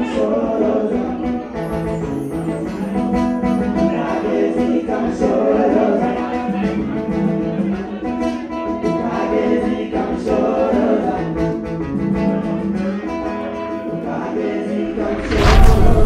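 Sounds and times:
song with singing: 0.0s - 16.0s.

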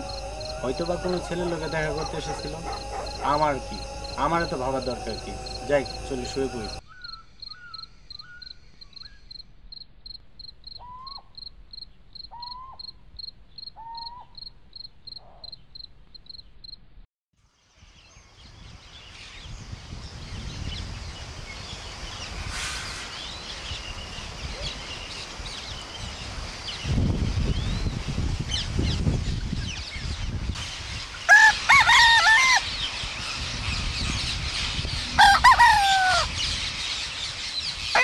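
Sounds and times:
short lower calls: 0.0s - 7.0s
birds calling at dawn: 0.0s - 9.4s, 10.6s - 11.5s, 12.2s - 14.5s, 30.6s - 38.0s
crickets chirping: 0.0s - 16.9s.

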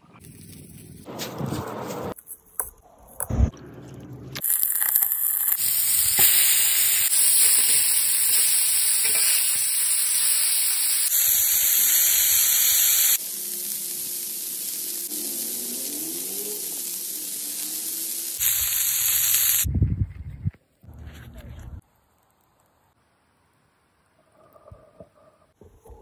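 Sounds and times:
patties sizzling on griddle: 4.4s - 19.7s.

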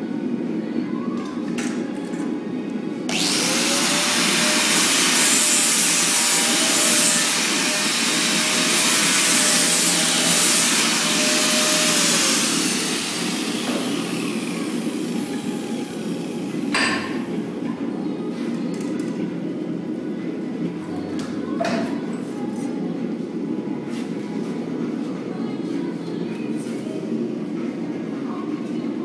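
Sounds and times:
low workshop rumble: 0.0s - 29.0s
angle grinder grinding steel: 3.1s - 16.5s
grinder motor whine: 3.1s - 16.5s.

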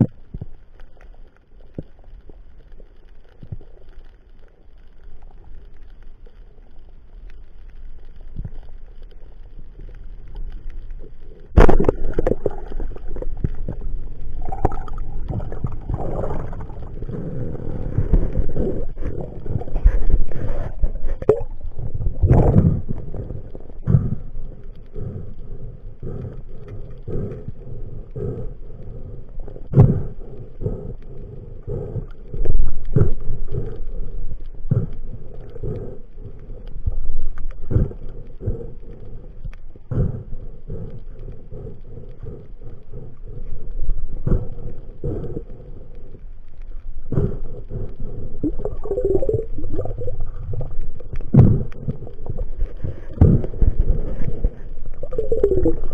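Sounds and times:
muffled underwater rumbling: 0.0s - 55.9s
underwater water rushing: 9.4s - 25.1s, 47.2s - 55.9s.

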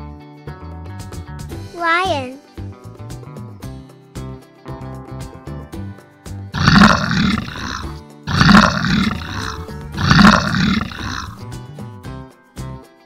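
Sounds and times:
light children's music: 0.0s - 6.5s, 10.9s - 13.0s
lion roaring: 6.6s - 11.4s.

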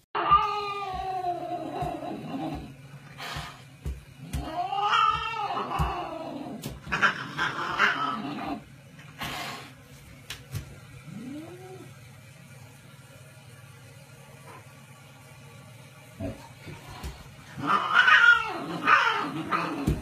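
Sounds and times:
cat yowling: 0.2s - 2.2s, 4.4s - 8.4s, 17.6s - 20.0s.

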